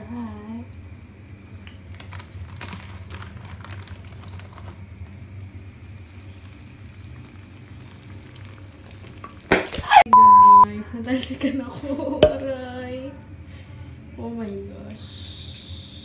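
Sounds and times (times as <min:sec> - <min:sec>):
oil crackling and spattering: 0:01.5 - 0:09.9
low steady hum: 0:10.0 - 0:15.7.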